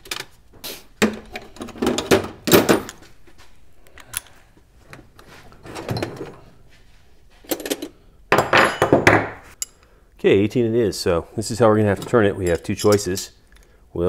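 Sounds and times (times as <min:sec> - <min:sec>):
tools knocking and clinking: 0:01.0 - 0:03.1, 0:07.4 - 0:09.8, 0:12.0 - 0:13.3.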